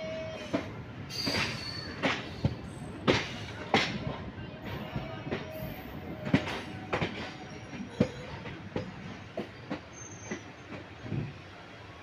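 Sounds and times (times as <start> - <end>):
train rumbling: 0.0 - 12.0
train wheels clicking over rail joints: 0.4 - 11.3.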